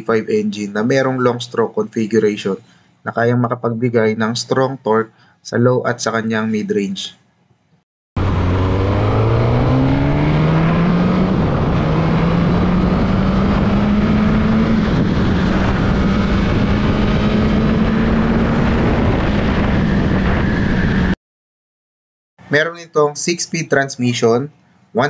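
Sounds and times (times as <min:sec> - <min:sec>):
motorcycle engine accelerating: 0:08.2 - 0:21.2
wind and road noise: 0:08.2 - 0:21.2.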